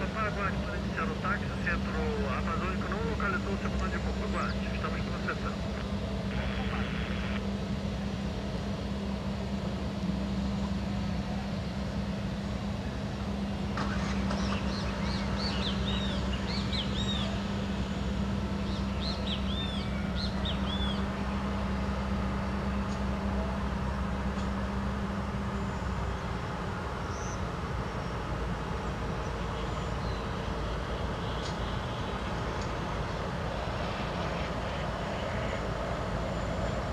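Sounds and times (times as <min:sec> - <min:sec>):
birds chirping: 0:00.0 - 0:07.4, 0:13.8 - 0:23.2, 0:27.0 - 0:36.8
jet engines droning: 0:00.0 - 0:36.9.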